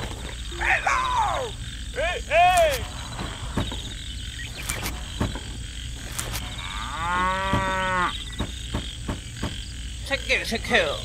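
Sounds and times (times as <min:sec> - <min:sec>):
cow mooing: 0:06.4 - 0:08.2.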